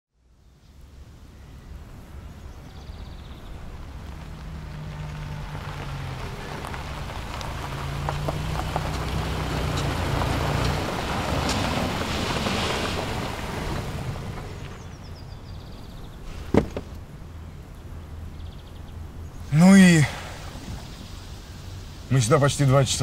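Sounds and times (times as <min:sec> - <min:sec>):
car engine hum: 0:00.7 - 0:23.0
tyres crunching on gravel: 0:02.8 - 0:17.2.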